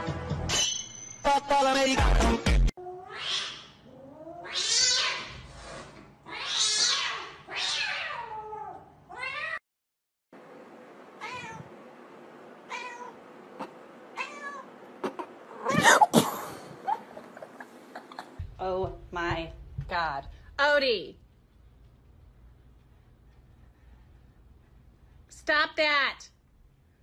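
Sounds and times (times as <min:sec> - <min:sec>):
cats yowling and meowing: 0:02.8 - 0:05.4, 0:06.3 - 0:09.6.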